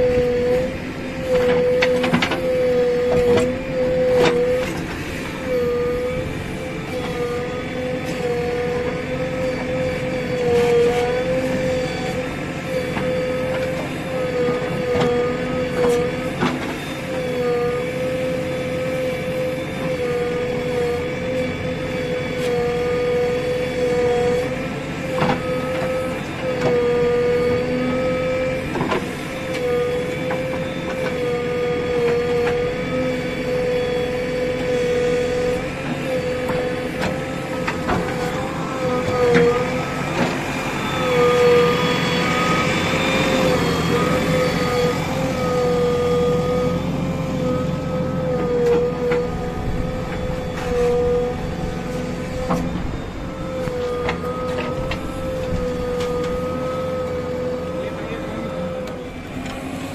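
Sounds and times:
diesel engine whining under load: 0:00.0 - 0:59.9.

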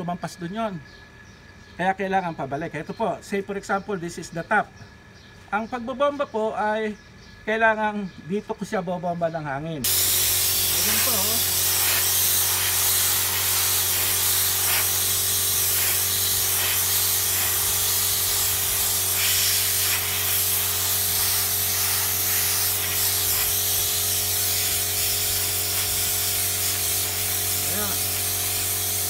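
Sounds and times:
compressed air hissing: 0:09.8 - 0:29.0.

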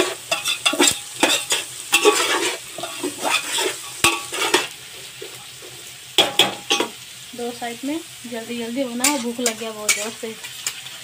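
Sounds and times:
metal spoon scraping a pot: 0:00.0 - 0:05.4, 0:09.0 - 0:10.9
vegetables sizzling in oil: 0:00.0 - 0:11.0.

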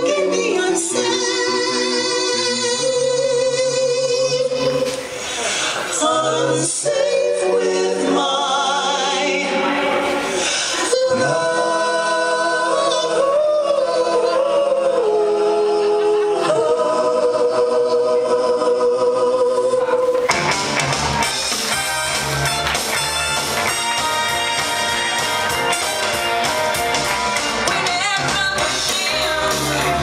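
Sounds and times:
voices singing in harmony: 0:00.0 - 0:20.3, 0:23.6 - 0:30.0
band with guitar and drums: 0:20.0 - 0:30.0.

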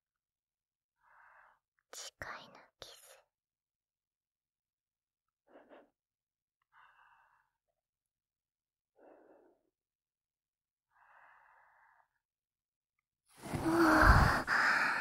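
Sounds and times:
woman breathing softly: 0:01.0 - 0:03.2, 0:05.4 - 0:06.0, 0:06.6 - 0:07.8, 0:08.9 - 0:09.8, 0:10.9 - 0:12.2, 0:13.4 - 0:15.0.

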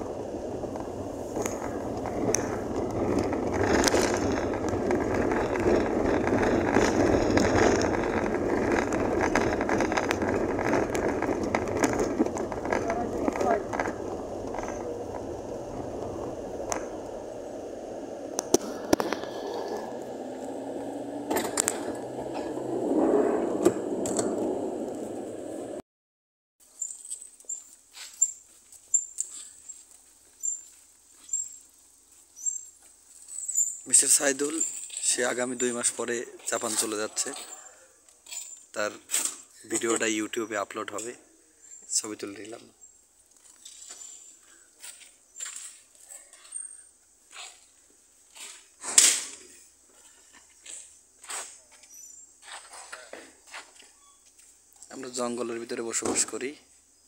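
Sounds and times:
wheels rolling over gravel road: 0:00.0 - 0:25.8, 0:26.6 - 0:56.7
night insects chirping: 0:26.6 - 0:57.0.

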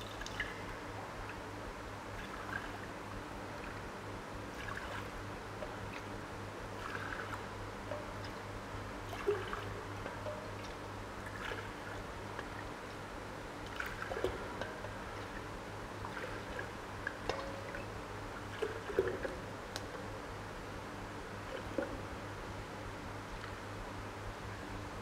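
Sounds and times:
liquid splashing and trickling: 0:00.0 - 0:01.5, 0:02.2 - 0:02.9, 0:04.5 - 0:13.0, 0:13.6 - 0:20.1, 0:21.4 - 0:22.2
steady low hum: 0:00.0 - 0:25.0.

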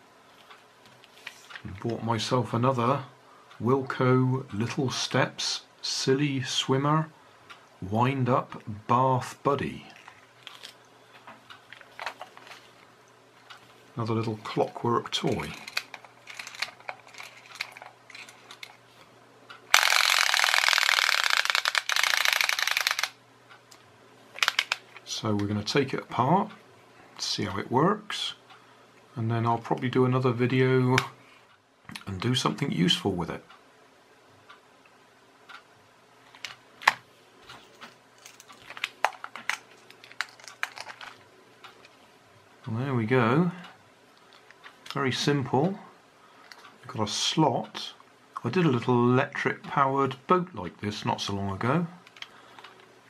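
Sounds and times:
clockwork toy motor rattling whirr: 0:15.4 - 0:18.8, 0:19.7 - 0:23.2
plastic clicks and snaps: 0:19.8 - 0:25.5, 0:37.8 - 0:41.9.

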